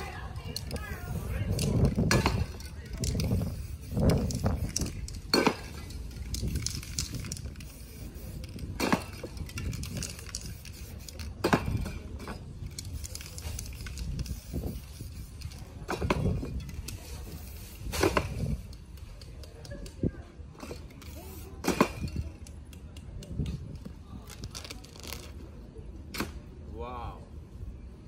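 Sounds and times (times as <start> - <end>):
short paint sprays: 0.3 - 20.0, 20.6 - 22.2.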